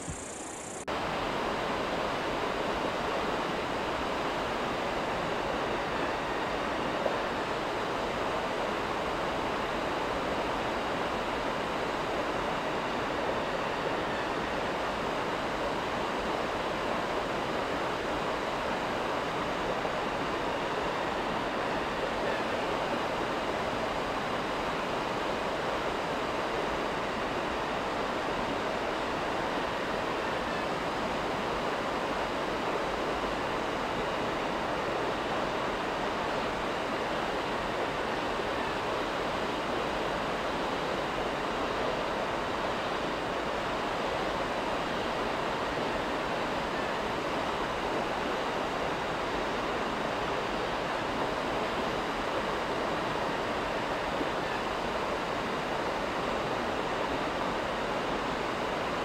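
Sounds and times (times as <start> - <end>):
steady rushing noise: 0.0 - 59.0.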